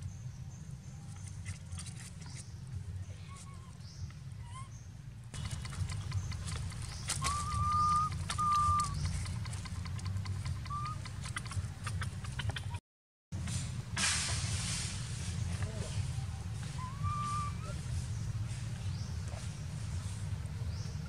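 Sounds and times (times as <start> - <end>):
high whistle-like animal calls: 7.1 - 9.2, 16.6 - 17.9.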